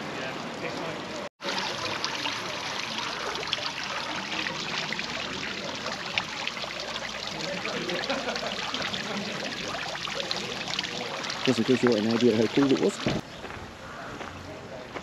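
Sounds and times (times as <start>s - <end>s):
water trickling: 0.0s - 13.3s.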